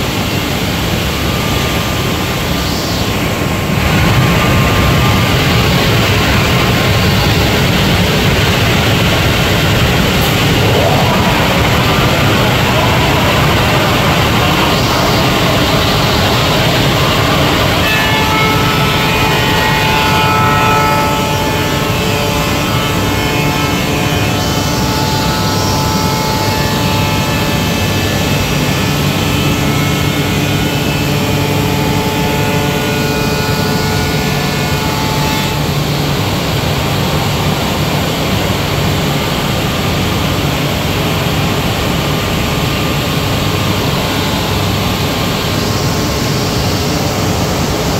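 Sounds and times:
steady whining tones: 0.0s - 40.0s
woodworking machine running: 0.6s - 38.5s.

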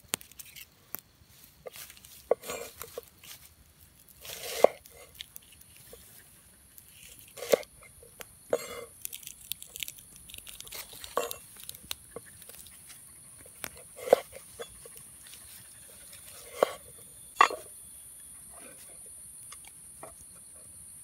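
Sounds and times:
cleaver slicing vegetables: 4.2s - 5.1s.

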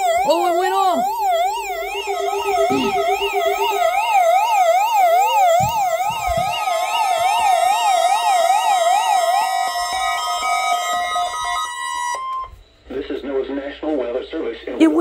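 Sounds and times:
steady alert tones: 0.0s - 12.5s
warbling siren-like alarm tone: 0.0s - 12.6s.

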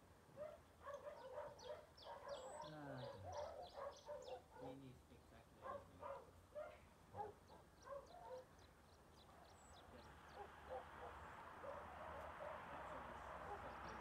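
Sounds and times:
distant animal calls: 0.8s - 4.8s, 9.2s - 14.0s.

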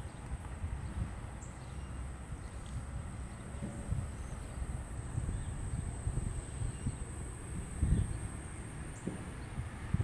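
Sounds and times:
faint high-pitched hum: 0.0s - 10.0s
wind buffeting microphone: 0.0s - 10.0s.

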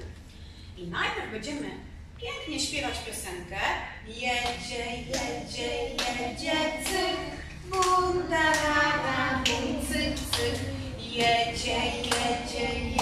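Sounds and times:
hand claps: 4.4s - 7.1s, 7.7s - 8.8s, 9.4s - 11.4s, 12.0s - 13.0s.

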